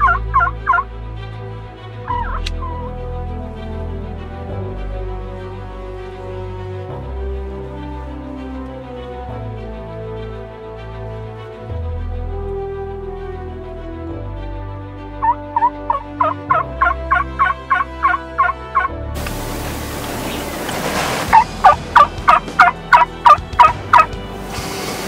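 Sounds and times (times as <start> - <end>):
turkey yelping: 0.0 - 0.8, 2.1 - 3.0, 15.2 - 18.9, 20.0 - 24.1
soft background music: 0.0 - 25.0
outdoor hiss: 19.2 - 21.6, 24.1 - 25.0.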